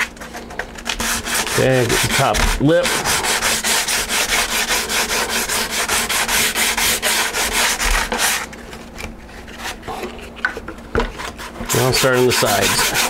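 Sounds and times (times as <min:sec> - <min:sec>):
sandpaper sanding strokes: 0:01.0 - 0:08.5, 0:11.2 - 0:13.0.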